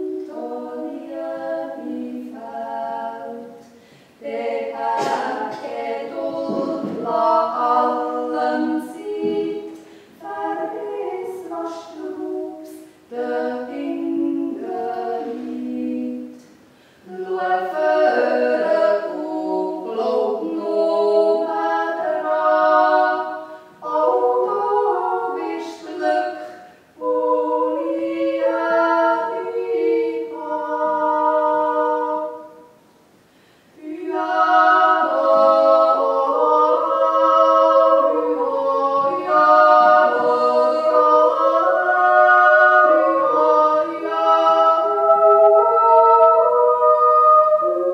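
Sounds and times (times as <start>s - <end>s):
women singing in harmony: 0.0s - 32.9s, 33.7s - 47.9s.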